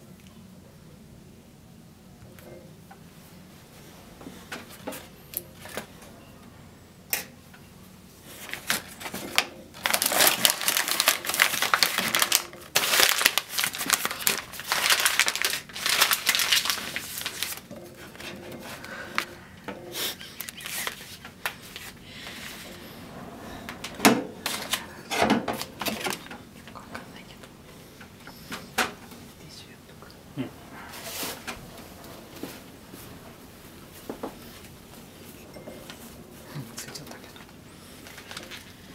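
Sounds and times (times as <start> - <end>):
newspaper crinkling and rustling: 8.3 - 19.3, 20.1 - 22.7, 36.9 - 38.9.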